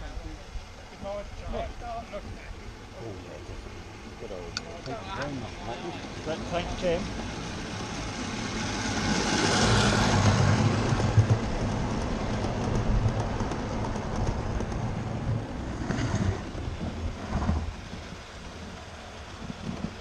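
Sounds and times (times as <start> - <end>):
model train wheels rumbling: 0.0 - 20.0.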